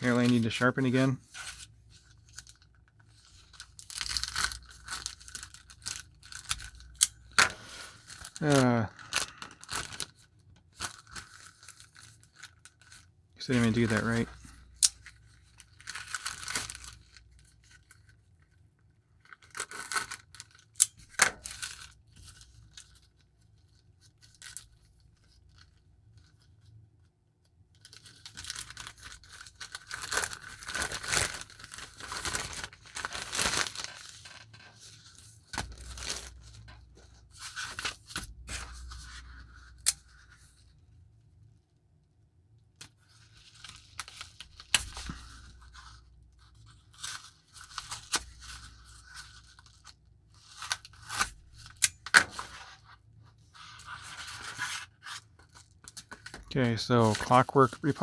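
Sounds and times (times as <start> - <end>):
packaging tearing and crinkling: 3.3 - 14.2, 14.8 - 18.1, 19.2 - 23.0, 27.8 - 34.8, 35.5 - 36.8, 42.8 - 52.7.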